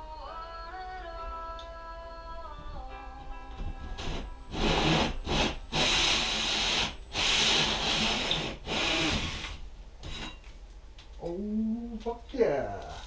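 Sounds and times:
tool rasping into ceiling board: 4.0s - 9.6s.

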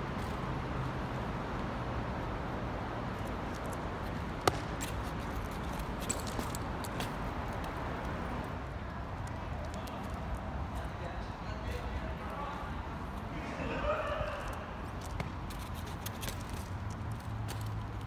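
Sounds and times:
city traffic hum: 0.0s - 18.0s.

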